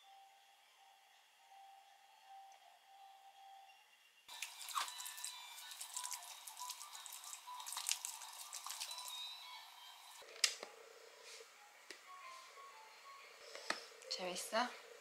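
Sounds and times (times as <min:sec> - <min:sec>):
milk sloshing in bottle: 0:04.3 - 0:09.2.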